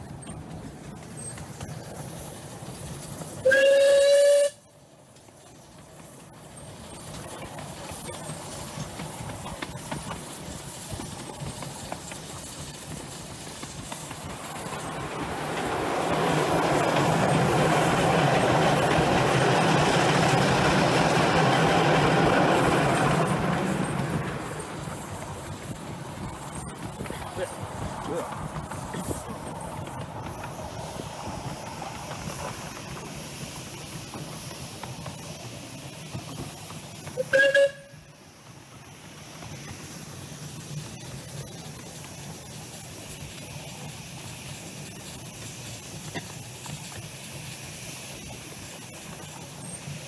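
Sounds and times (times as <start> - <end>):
train running on track: 0.0 - 50.0
locomotive whistle: 3.4 - 4.8, 37.0 - 38.2.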